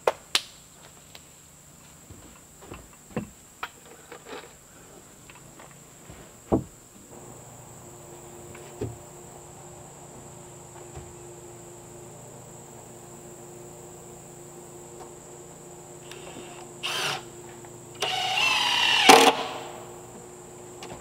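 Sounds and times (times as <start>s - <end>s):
high insect buzz: 5.2s - 21.0s.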